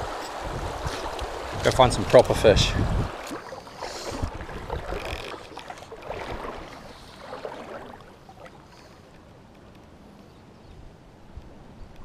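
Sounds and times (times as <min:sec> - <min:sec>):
river water rushing: 0:00.0 - 0:09.0.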